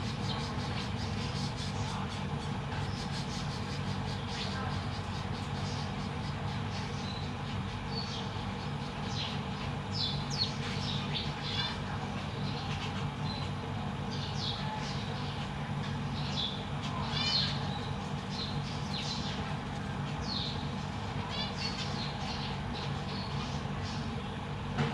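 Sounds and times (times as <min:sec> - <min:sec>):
steady low hum: 0:00.0 - 0:24.9
finches chirping: 0:16.0 - 0:19.6, 0:20.2 - 0:24.0.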